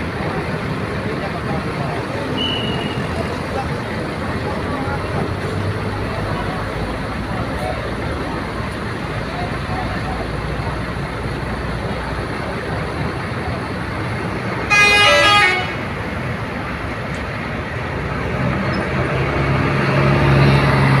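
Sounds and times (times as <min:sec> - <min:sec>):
bus engine low drone: 0:00.0 - 0:21.0
bus engines rumbling: 0:00.0 - 0:21.0
loud horn blast: 0:14.7 - 0:16.0.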